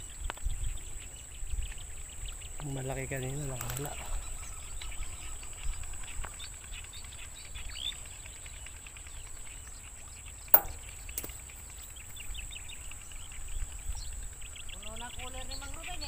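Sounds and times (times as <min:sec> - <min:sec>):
wind rumble on microphone: 0:00.0 - 0:07.8, 0:12.0 - 0:16.0
small birds chirping: 0:00.0 - 0:16.0
sharp click: 0:10.6 - 0:11.4.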